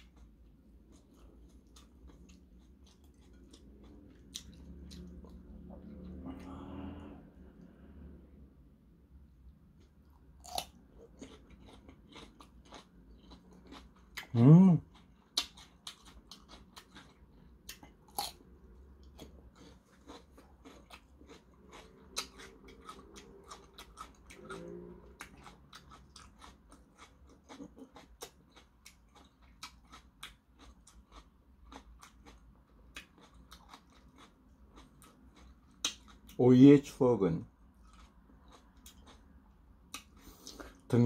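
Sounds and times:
cucumber crunching while chewed: 9.8 - 41.0.

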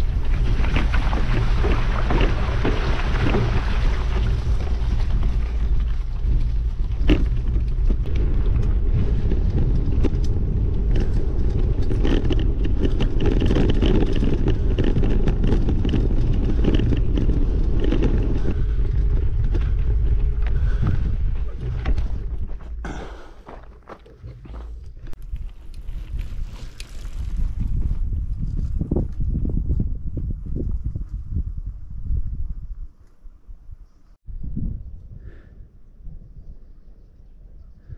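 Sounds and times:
tyres crunching over stones: 0.0 - 27.8
vehicle rumbling on gravel track: 0.0 - 30.0.

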